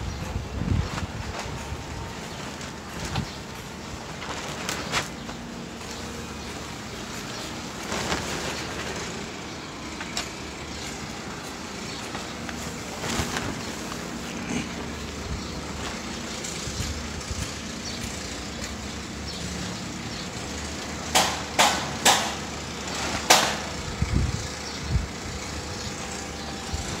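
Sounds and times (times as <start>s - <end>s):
sharp knocks: 21.1s - 22.4s.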